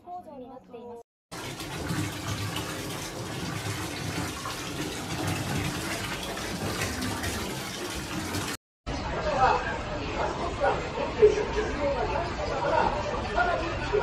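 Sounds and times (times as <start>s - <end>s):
water sloshing in bathtub: 1.3s - 8.6s.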